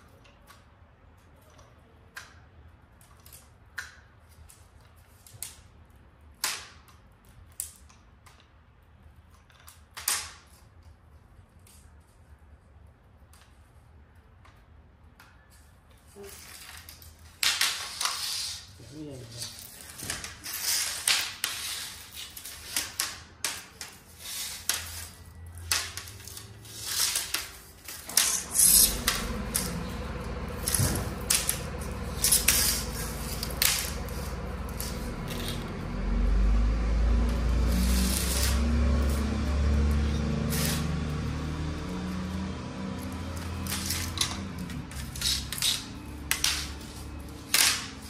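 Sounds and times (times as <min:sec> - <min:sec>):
steady low hum: 0:25.0 - 0:48.0.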